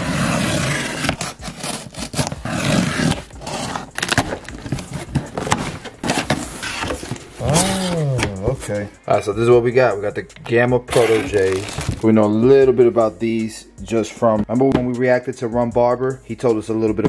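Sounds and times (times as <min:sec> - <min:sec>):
packing tape ripping: 0:00.0 - 0:08.2, 0:10.9 - 0:12.1
cardboard flaps scraping: 0:10.9 - 0:12.1.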